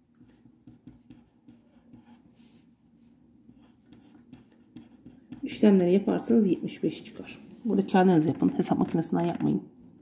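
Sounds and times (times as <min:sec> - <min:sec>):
pen scratching on paper: 0:00.2 - 0:02.7, 0:03.5 - 0:07.0.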